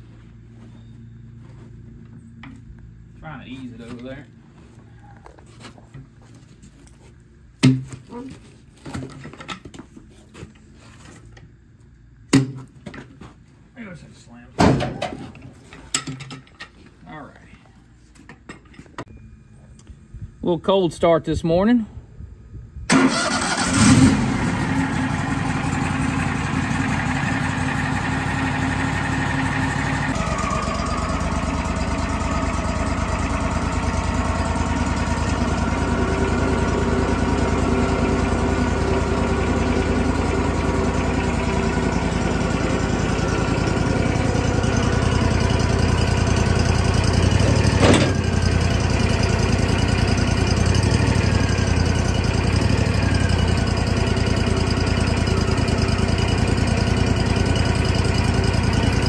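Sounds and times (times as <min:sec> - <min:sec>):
sawmill engine starting and running: 0:22.9 - 0:59.0.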